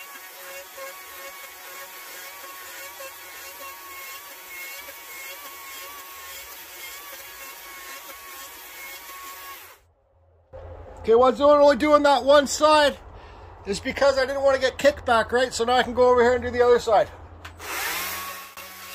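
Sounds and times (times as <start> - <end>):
chainsaw cutting wood: 0.0 - 9.8, 17.6 - 18.9.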